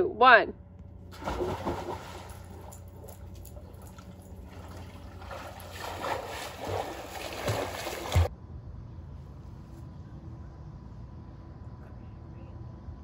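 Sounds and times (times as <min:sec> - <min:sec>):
pool water splashing: 0:01.1 - 0:08.3.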